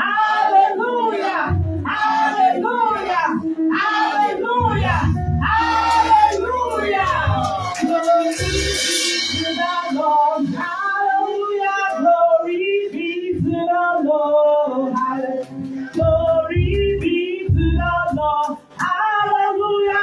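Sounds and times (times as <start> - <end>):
person singing lead melody: 0.0 - 20.0
worship music: 0.0 - 20.0
deep bass notes: 1.5 - 1.9, 4.6 - 7.8, 16.0 - 18.4.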